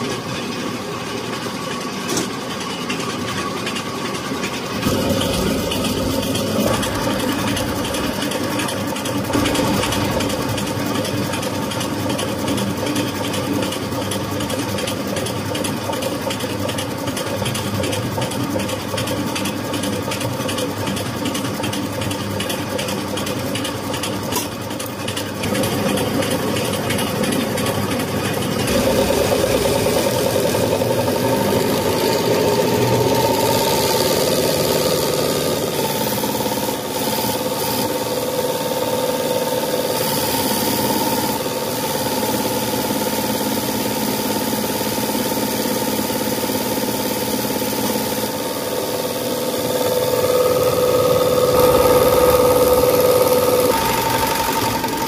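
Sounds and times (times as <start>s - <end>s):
test bench mechanical hum: 0.0s - 55.0s.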